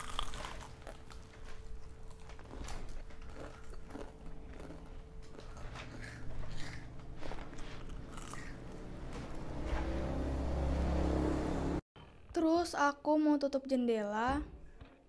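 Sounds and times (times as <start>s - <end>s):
crunchy fritter being chewed: 0.0s - 8.8s.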